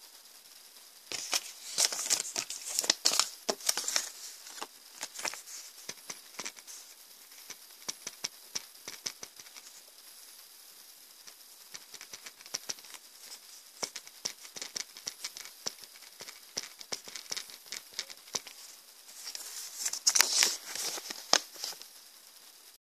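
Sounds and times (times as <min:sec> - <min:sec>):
small clicks and taps: 0:01.1 - 0:06.6, 0:07.4 - 0:09.7, 0:11.7 - 0:13.0, 0:13.8 - 0:18.6
paper rustling and crinkling: 0:01.1 - 0:06.9, 0:11.8 - 0:21.9.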